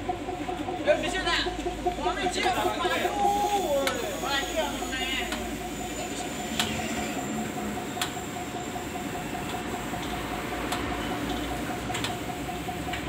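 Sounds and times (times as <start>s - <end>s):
sharp metallic clicks: 3.8s - 13.0s.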